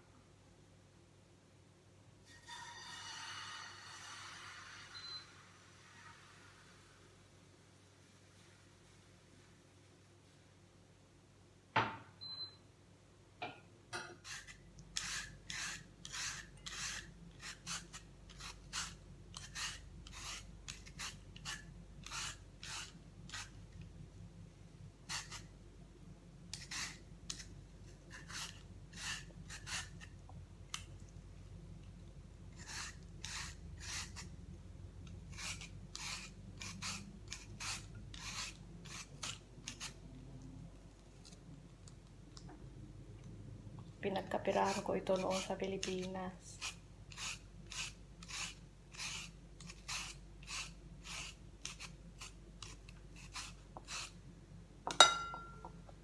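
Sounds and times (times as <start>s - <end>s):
single knock: 11.8s - 12.1s
vegetable peeler rasping: 14.2s - 23.7s, 25.1s - 25.5s, 26.5s - 30.2s, 32.6s - 34.4s, 35.1s - 40.1s, 44.2s - 54.2s.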